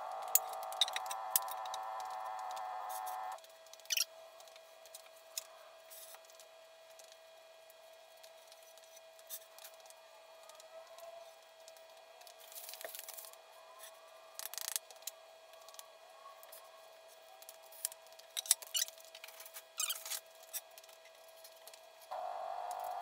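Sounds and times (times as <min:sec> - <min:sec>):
faint steady hum: 0:00.0 - 0:03.5, 0:21.2 - 0:23.0.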